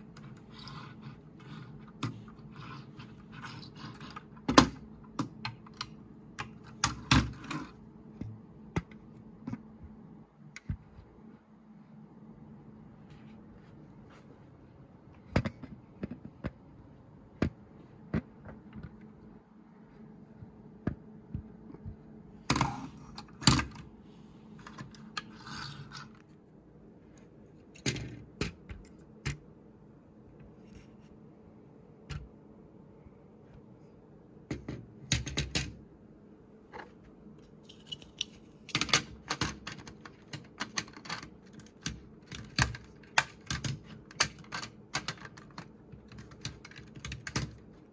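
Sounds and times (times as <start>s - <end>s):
plastic bricks clicking and scraping: 37.7s - 47.7s.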